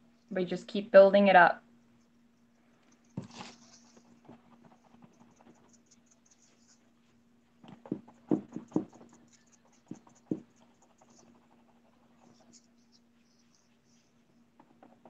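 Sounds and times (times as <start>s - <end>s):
faint steady hum: 0.0s - 15.0s
sponge tapping on canvas: 7.6s - 10.7s.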